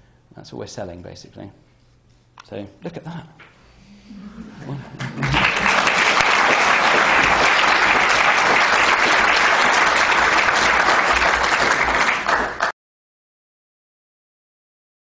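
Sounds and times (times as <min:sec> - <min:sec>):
audience applauding: 0:04.6 - 0:12.7.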